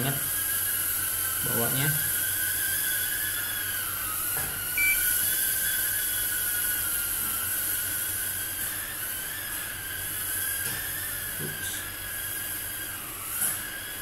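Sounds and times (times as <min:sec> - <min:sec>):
drone motors whining: 0:00.0 - 0:14.0
short high beep: 0:04.8 - 0:05.3.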